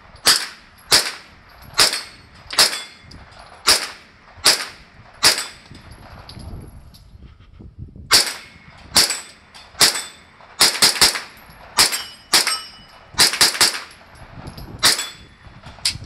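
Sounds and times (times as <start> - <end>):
pistol gunshots: 0.2 - 3.0, 3.6 - 5.6, 8.1 - 14.1.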